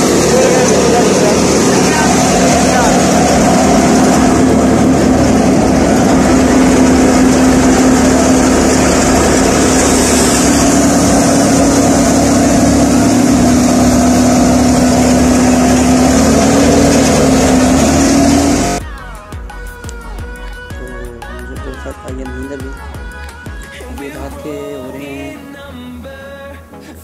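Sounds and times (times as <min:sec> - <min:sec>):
wheat thresher machine running: 0:00.0 - 0:18.8.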